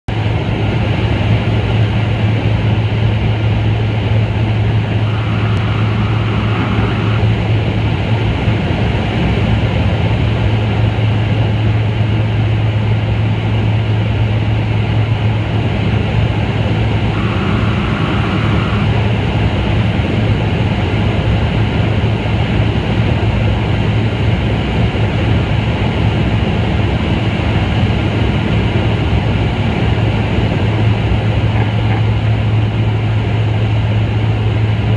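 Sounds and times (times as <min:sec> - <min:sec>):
aircraft engine drone in cabin: 0:00.1 - 0:34.9.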